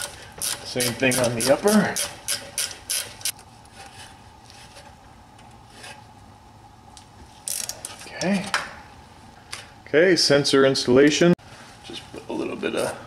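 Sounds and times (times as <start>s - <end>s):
ratcheting wrench clicking: 0.0s - 3.3s.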